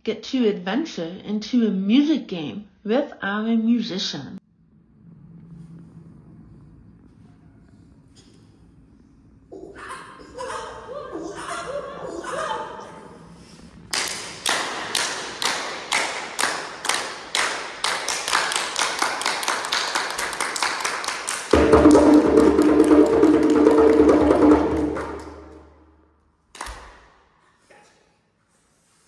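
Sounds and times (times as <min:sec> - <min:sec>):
hand claps: 0:13.9 - 0:25.8, 0:26.5 - 0:27.1
djembe roll: 0:21.5 - 0:25.7.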